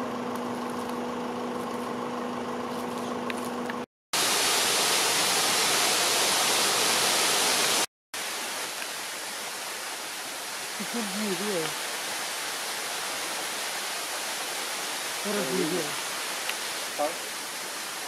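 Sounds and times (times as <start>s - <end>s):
outdoor background hiss: 4.2s - 18.0s.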